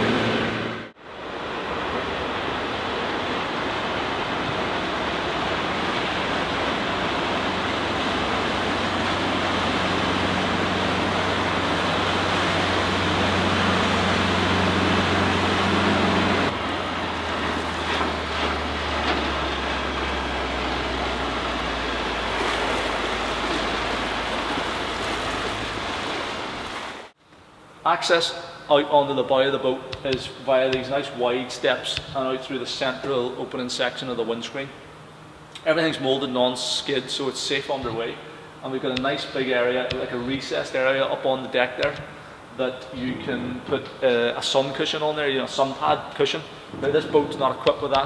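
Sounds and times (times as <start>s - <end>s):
boat engine droning: 0.0s - 27.2s, 28.8s - 48.0s
wind noise on microphone: 46.7s - 47.5s.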